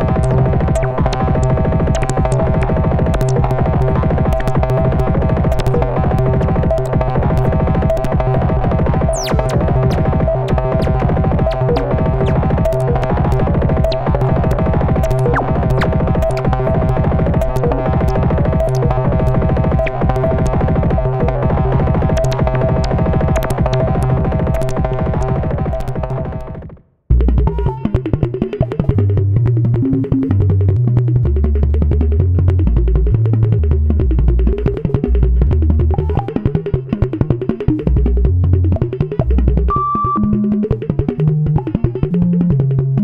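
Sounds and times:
clicky electronic hits: 0.0 - 26.8.

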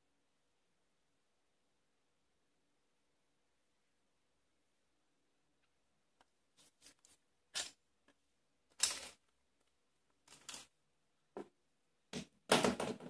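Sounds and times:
plastic clicks and rustles: 6.2 - 10.7.

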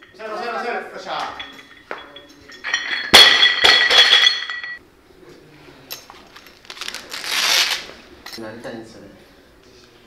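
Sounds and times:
bar and plates ringing: 0.0 - 4.8.

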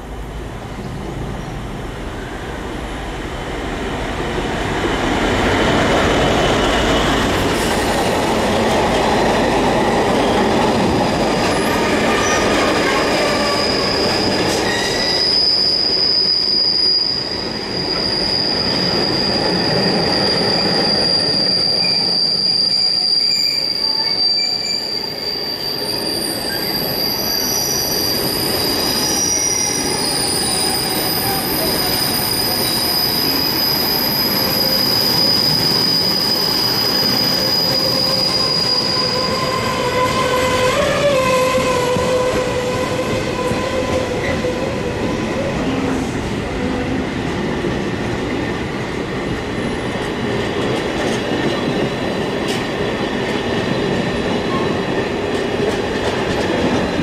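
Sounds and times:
train wheels rumbling on rail: 0.0 - 57.0
high-pitched wheel squeal: 11.5 - 45.8.

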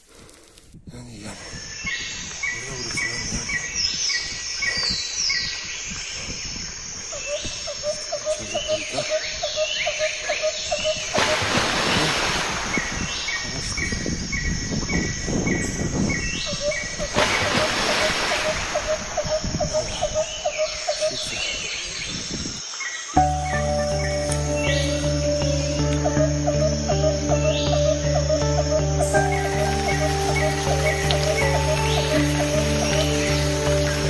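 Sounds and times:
birds chirping and whistling: 1.3 - 34.0
wind-like rushing noise: 10.7 - 22.7.

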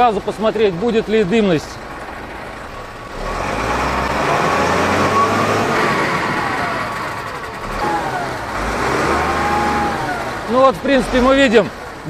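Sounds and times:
diesel engine revving: 0.0 - 12.0.

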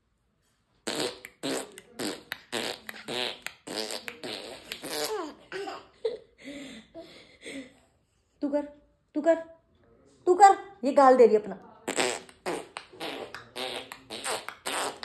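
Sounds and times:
person making buzzy vocal bursts: 0.8 - 5.3, 11.9 - 15.0.

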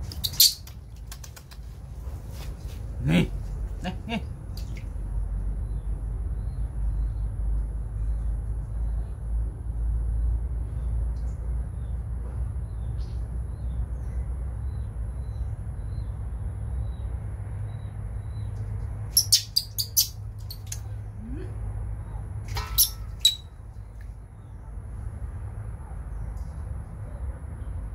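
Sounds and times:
water splashing in metal basin: 4.5 - 5.0, 22.5 - 23.2
steady low rumble: 20.2 - 27.9.

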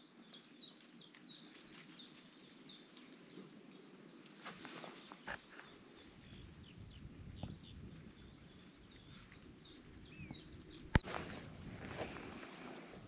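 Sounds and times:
faint birdsong: 0.0 - 13.0.

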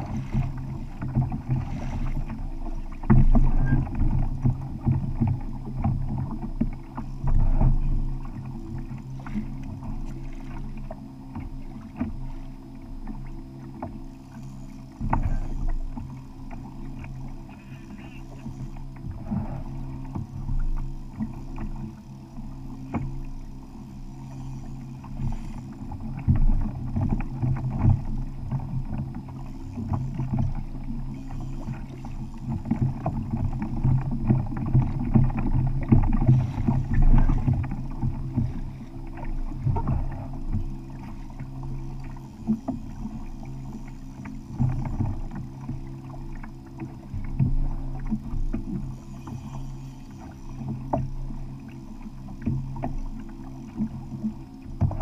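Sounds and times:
water slapping against kayak hull: 0.0 - 12.4, 52.4 - 55.0
knocks and creaks from boat: 0.0 - 55.0
low steady hum: 0.0 - 55.0.

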